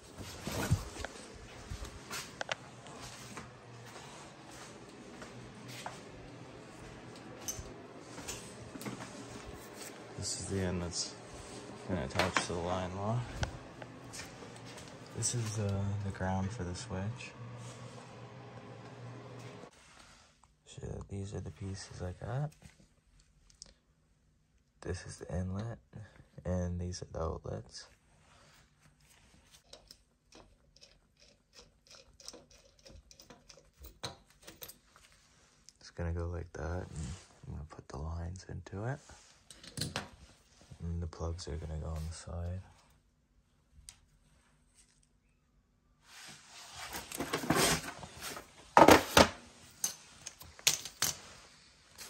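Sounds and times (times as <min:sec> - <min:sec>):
rustling: 0:00.0 - 0:06.0.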